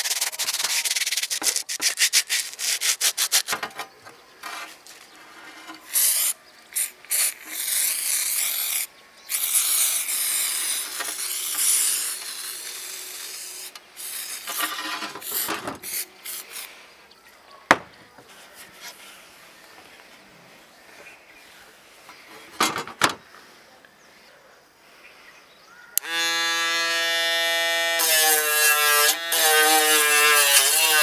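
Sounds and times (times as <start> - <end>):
sandpaper scrubbing metal: 0.0 - 3.8, 5.2 - 16.6, 27.0 - 31.0
aerosol spray can hissing: 5.9 - 16.7.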